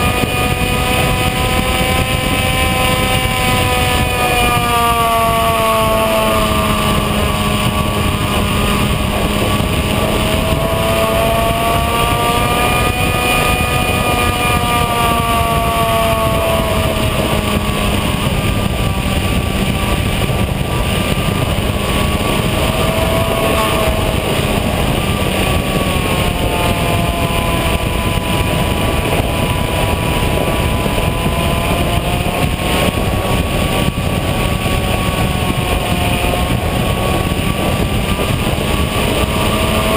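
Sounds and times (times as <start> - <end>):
electric propeller motor whine: 0.0 - 39.9
wind rushing across microphone: 0.0 - 39.9.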